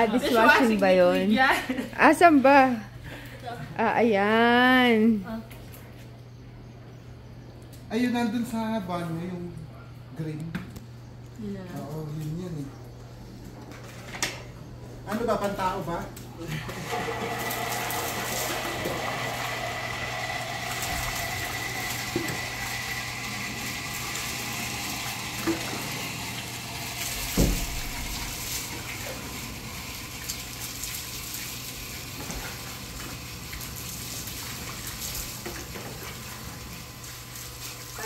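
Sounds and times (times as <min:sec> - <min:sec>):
water pouring over dog: 0:16.7 - 0:38.0
water splashing on concrete: 0:20.6 - 0:38.0.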